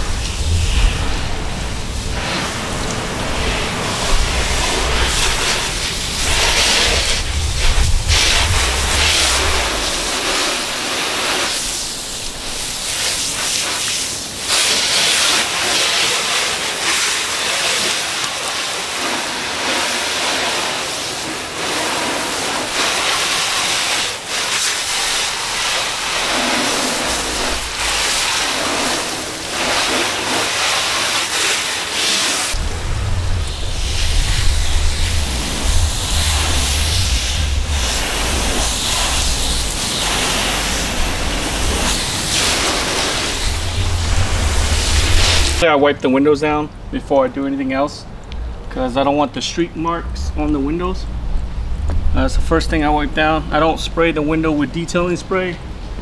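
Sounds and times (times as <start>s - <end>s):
low rumble: 0.0s - 12.9s, 32.5s - 45.6s, 49.9s - 54.7s
hose water spraying on car: 0.0s - 45.6s.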